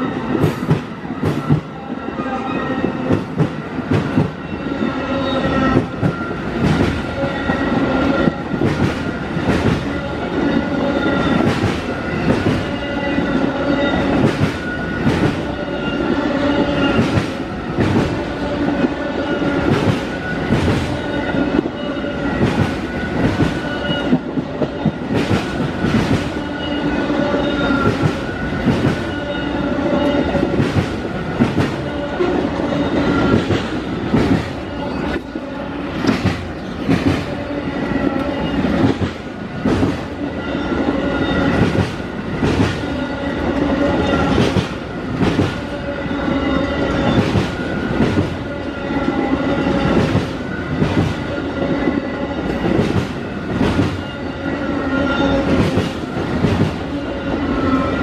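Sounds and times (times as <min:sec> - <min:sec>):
train wheels clacking over rail joints: 0:36.0 - 0:37.4.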